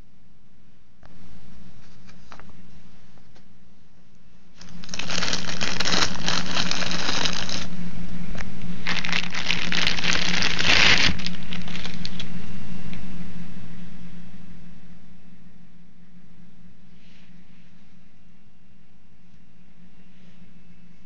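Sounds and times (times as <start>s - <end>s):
steady low hum: 0.0s - 21.0s
plastic bag crinkling: 4.6s - 7.7s, 8.8s - 12.3s.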